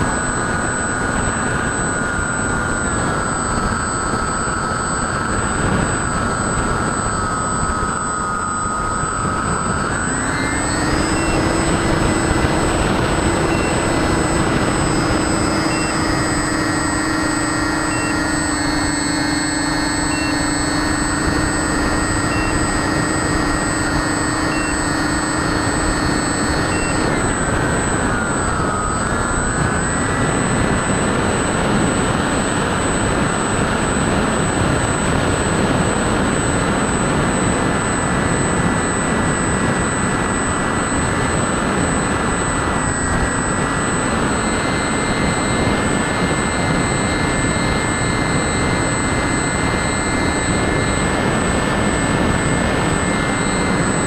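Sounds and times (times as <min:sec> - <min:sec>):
electric motors whining: 0:00.0 - 0:54.0.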